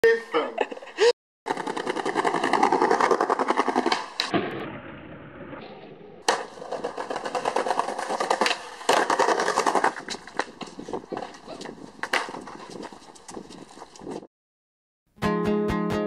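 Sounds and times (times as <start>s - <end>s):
skateboard wheels clicking over paving: 1.5s - 14.3s.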